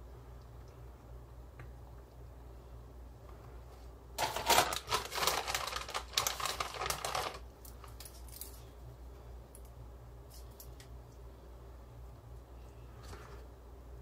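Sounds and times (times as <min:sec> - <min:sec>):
plastic bag crinkling: 0:04.2 - 0:08.6.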